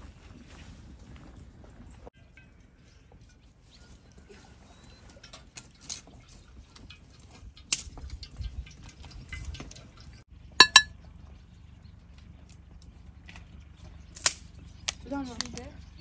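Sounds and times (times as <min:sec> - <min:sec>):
oil trickling into a wok: 0:02.2 - 0:10.9
spoon clinking on tableware: 0:10.6 - 0:10.9.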